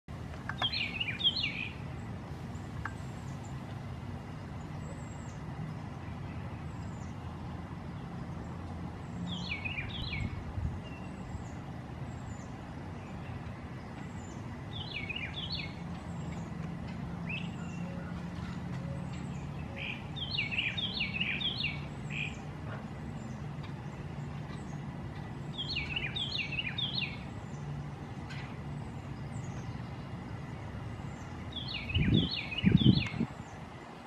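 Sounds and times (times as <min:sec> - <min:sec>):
bird warbling song: 0:00.4 - 0:03.8, 0:08.0 - 0:33.7.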